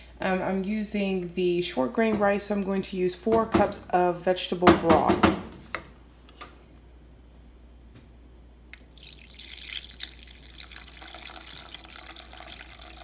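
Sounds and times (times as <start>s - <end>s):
broth trickling into a pan: 8.7s - 13.0s.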